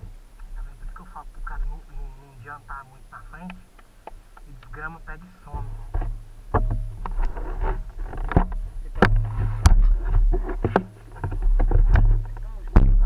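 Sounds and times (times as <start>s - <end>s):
wind rumbling on microphone: 0.0s - 13.0s
camera knocks and rattles: 5.7s - 13.0s.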